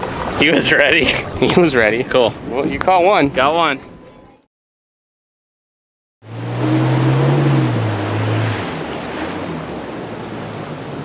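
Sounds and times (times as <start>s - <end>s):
rush of foaming water: 0.0s - 2.6s, 6.2s - 11.0s
outboard motor running: 6.2s - 11.0s.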